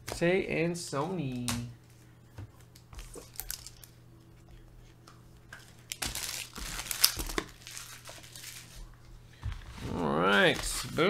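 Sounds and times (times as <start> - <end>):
packaging crinkling and rustling: 2.7 - 3.9, 5.5 - 9.0.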